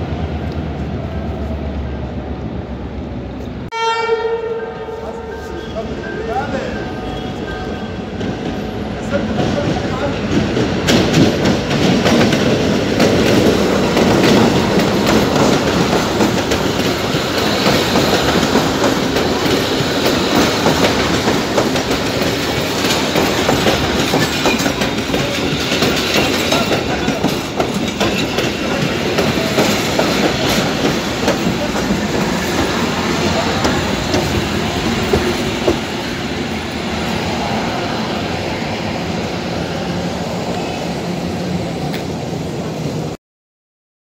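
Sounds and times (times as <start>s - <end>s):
train rumbling past: 0.0s - 43.2s
clickety-clack of wheels on rails: 5.6s - 37.5s.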